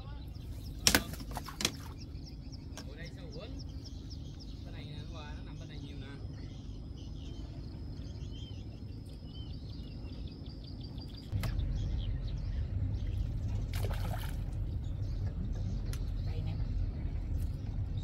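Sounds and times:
low outdoor rumble: 0.0 - 18.0
small birds chirping: 0.0 - 18.0
fish splashing in water: 13.7 - 14.6.

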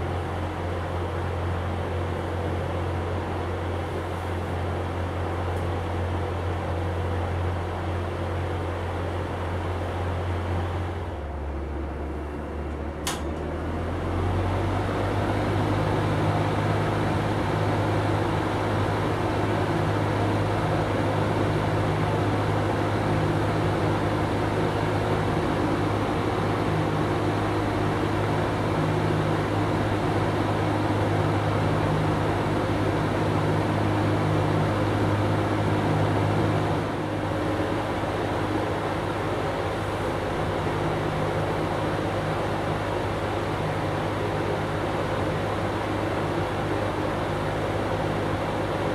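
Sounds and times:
box fan humming: 0.0 - 48.9
fan switch click: 12.7 - 13.5.

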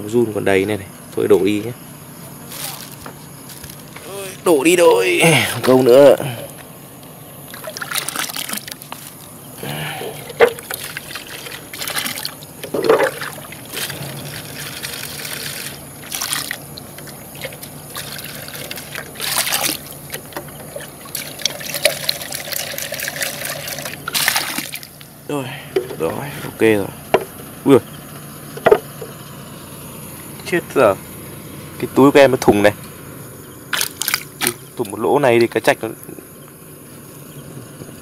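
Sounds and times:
water sloshing in a jar: 7.4 - 27.4, 28.5 - 29.1, 33.7 - 35.7.

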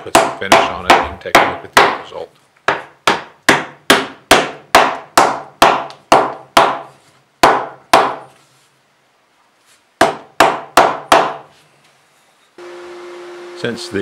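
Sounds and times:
wooden mallet tapping wood: 0.1 - 2.0, 2.6 - 8.3, 10.0 - 11.4.

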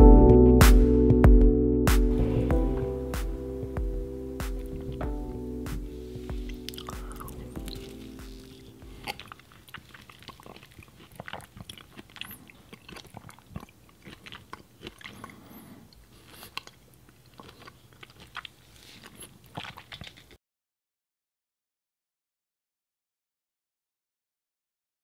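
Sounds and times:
mouth clicks and chewing: 5.8 - 20.4.

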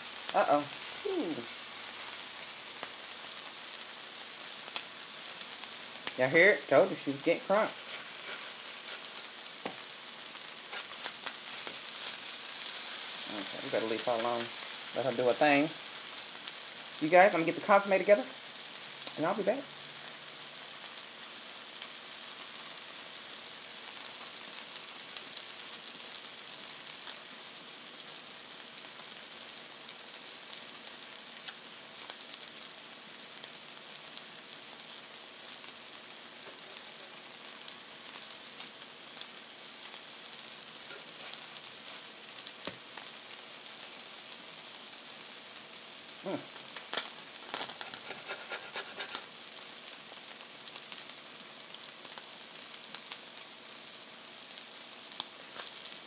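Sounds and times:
tacos sizzling on a griddle: 0.0 - 56.0
spatula clicking and scraping: 7.8 - 9.8, 47.5 - 49.3.

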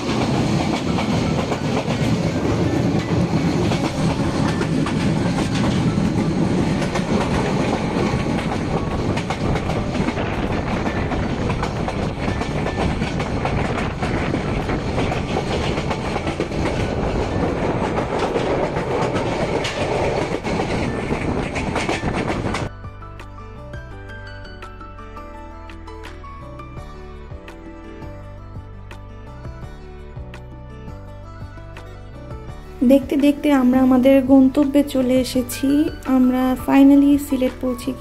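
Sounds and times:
train rumbling and rattling: 0.0 - 22.7, 32.4 - 38.0
wheels clattering over rail joints: 0.0 - 22.7.

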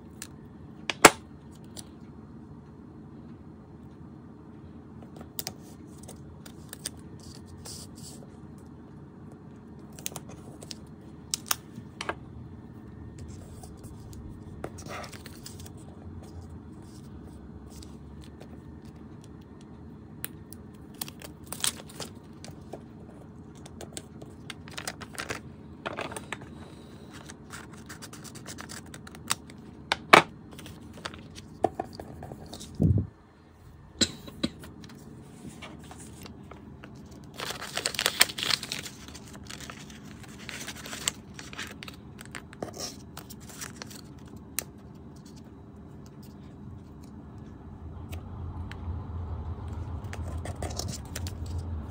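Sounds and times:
steady low hum: 0.0 - 51.9.

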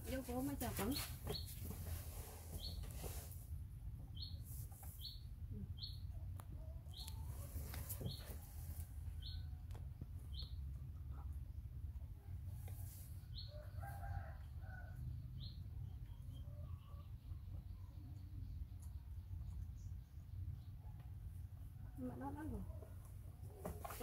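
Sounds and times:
small bird chirping: 2.5 - 3.0, 4.1 - 8.5, 9.2 - 9.6, 10.2 - 11.2, 14.8 - 21.0.

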